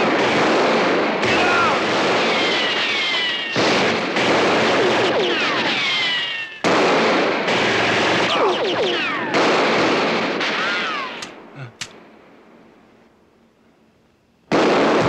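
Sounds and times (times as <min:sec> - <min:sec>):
dense gunfire: 0:00.0 - 0:12.8, 0:14.5 - 0:15.0
bullet ricochets whining: 0:01.2 - 0:06.8, 0:07.5 - 0:11.4.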